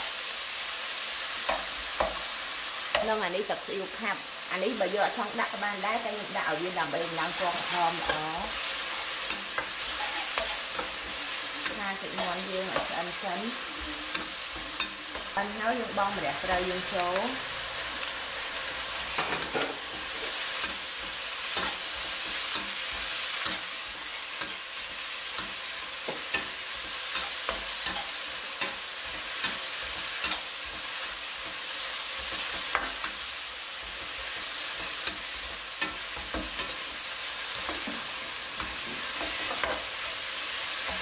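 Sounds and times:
meat sizzling in a wok: 0.0 - 41.0
metal spatula scraping a pan: 7.5 - 40.0.

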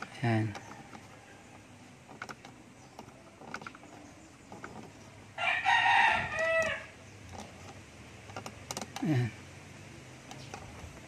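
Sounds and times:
rooster crowing: 5.4 - 7.0.

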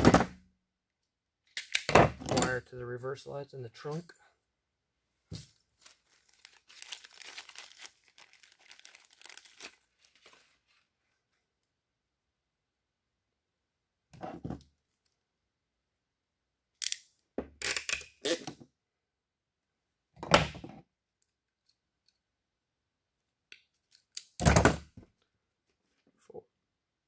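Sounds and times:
wires and connector rustling: 5.3 - 10.9.

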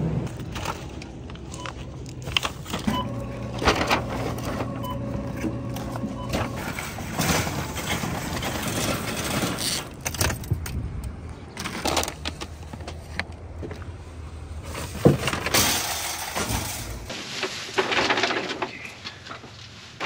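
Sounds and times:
traffic: 0.0 - 17.1
shopping cart rattling over pavement: 6.6 - 10.4, 14.6 - 20.0.

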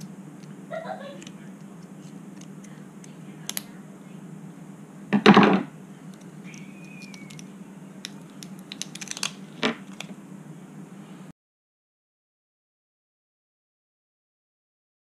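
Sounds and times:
steady low hum: 0.0 - 11.3
small plastic clicks: 6.1 - 10.1
plastic tubing crackling tear: 8.1 - 10.1.

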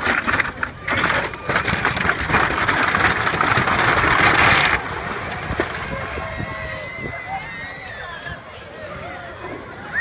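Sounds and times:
sheet metal roof crunching: 0.0 - 6.6.

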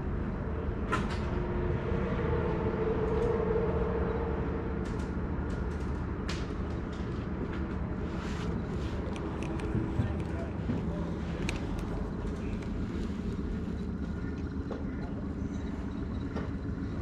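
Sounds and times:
boat motor rumbling: 0.0 - 17.0
light clicks: 8.4 - 14.8.

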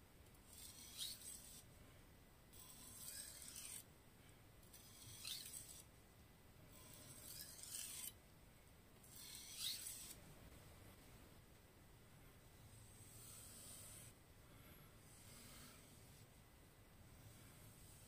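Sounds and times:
knife scraping on whetstone: 0.5 - 1.7, 2.6 - 3.9, 4.7 - 5.9, 6.8 - 8.2, 9.1 - 10.2, 13.0 - 14.1.

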